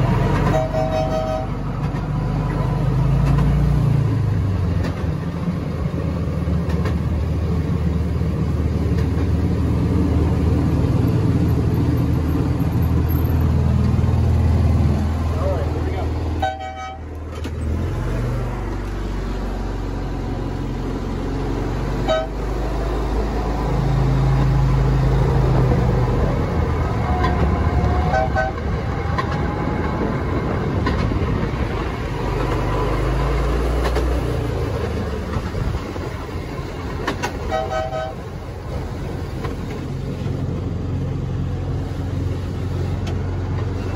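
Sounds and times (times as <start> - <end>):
diesel locomotive engine rumbling: 0.0 - 43.9
locomotive horn toots: 0.3 - 1.7, 16.4 - 17.2, 22.0 - 22.5, 27.0 - 28.7, 37.4 - 38.3.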